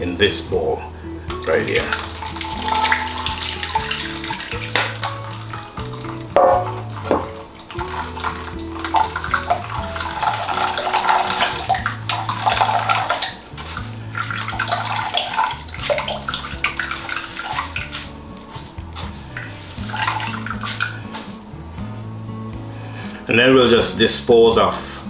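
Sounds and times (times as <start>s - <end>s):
liquid pouring and splashing into bowl: 1.3s - 21.4s.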